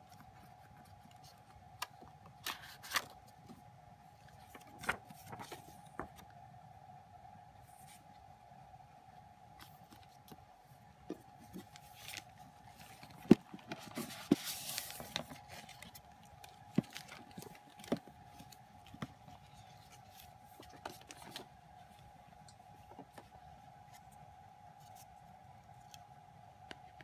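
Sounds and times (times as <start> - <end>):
faint steady hum: 0.0 - 27.0
papery sliding rustle: 4.2 - 6.2, 11.4 - 16.1.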